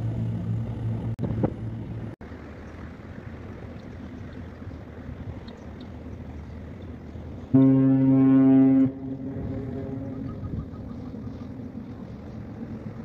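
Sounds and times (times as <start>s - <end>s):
ship's horn blast: 7.4s - 11.1s.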